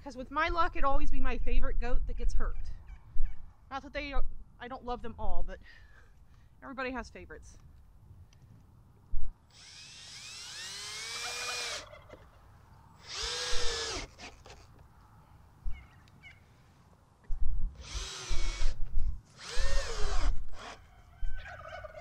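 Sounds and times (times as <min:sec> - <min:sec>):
cordless drill driving screws: 0:09.5 - 0:11.8, 0:13.0 - 0:14.7, 0:17.8 - 0:20.8.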